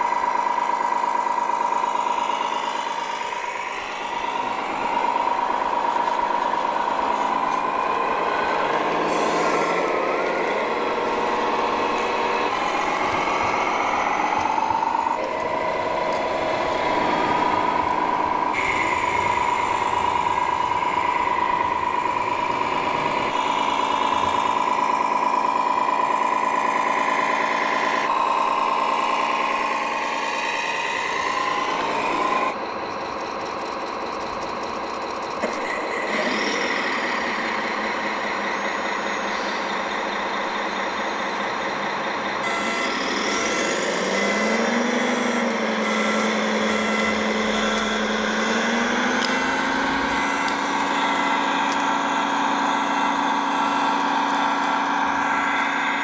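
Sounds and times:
reversing beeper: 0.0s - 56.0s
simulated diesel engine sounds: 0.0s - 56.0s.

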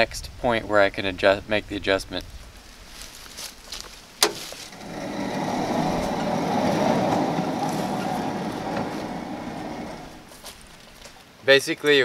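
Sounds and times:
sawmill carriage rumbling on rails: 4.5s - 10.5s.

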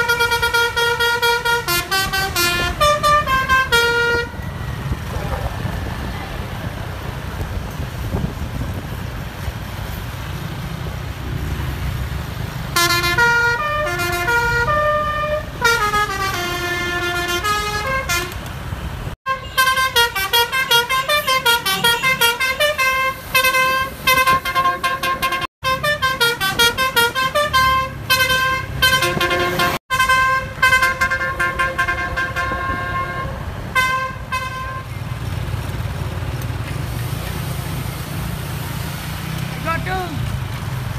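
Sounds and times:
bus musical horn: 0.0s - 4.6s, 12.7s - 18.5s, 19.2s - 35.0s
low traffic rumble: 0.0s - 40.9s.

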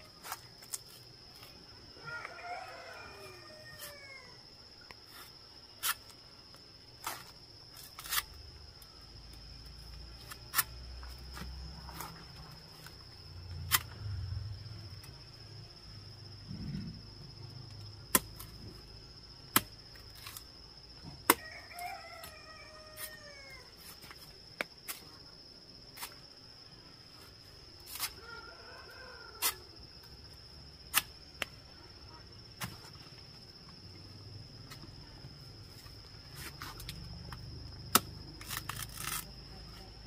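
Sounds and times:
rooster crowing: 2.0s - 4.5s, 21.3s - 23.8s, 28.2s - 29.8s
machete chopping banana stalk: 18.1s - 18.6s, 19.5s - 20.4s, 21.0s - 21.5s, 30.9s - 31.5s, 37.8s - 39.3s.

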